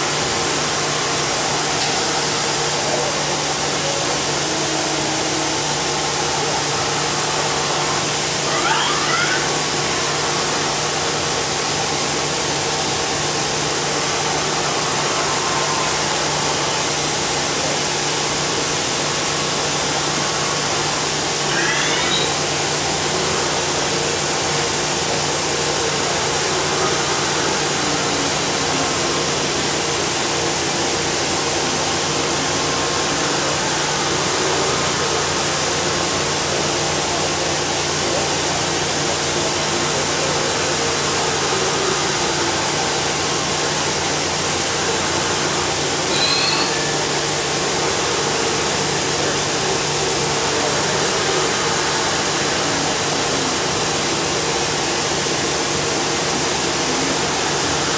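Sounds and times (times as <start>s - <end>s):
machine whir and hum: 0.0s - 57.9s
motor whines: 19.9s - 30.1s
short high rising chirp: 21.5s - 22.6s, 46.1s - 47.1s.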